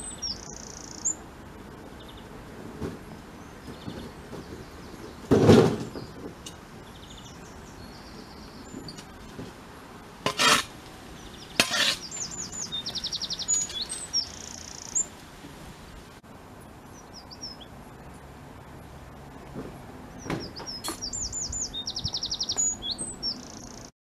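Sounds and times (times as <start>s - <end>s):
songbirds singing: 0.0s - 15.3s, 15.9s - 23.9s
knocks digging in stony soil: 10.2s - 14.2s.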